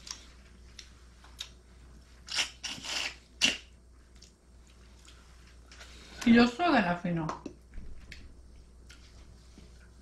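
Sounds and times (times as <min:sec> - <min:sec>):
scrapes and rustles while eating: 0:04.0 - 0:06.3, 0:07.8 - 0:10.0.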